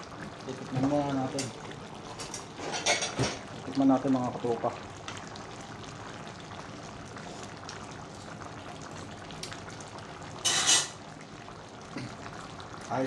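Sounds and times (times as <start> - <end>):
stew bubbling and hissing: 3.4 - 13.0.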